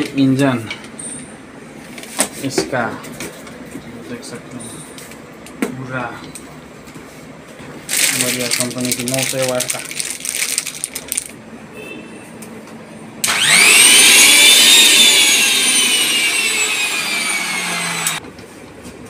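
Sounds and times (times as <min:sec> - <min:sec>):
plastic wrapping crinkling: 0:07.9 - 0:11.4
mixer grinder motor whining: 0:13.2 - 0:18.2.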